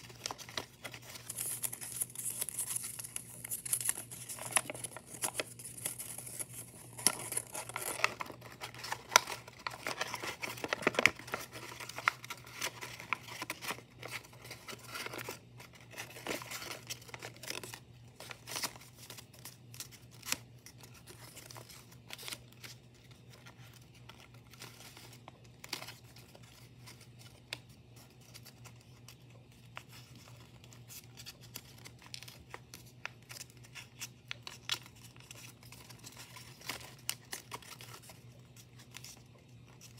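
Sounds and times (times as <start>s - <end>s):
paper crinkling and rustling: 0.0s - 39.9s.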